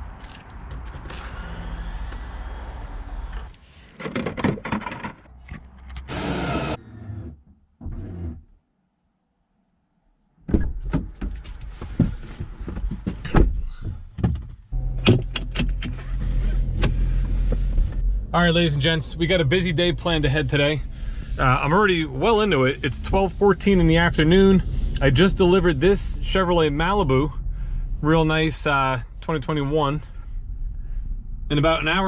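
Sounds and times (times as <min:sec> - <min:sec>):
steady low hum: 0:15.9 - 0:32.0.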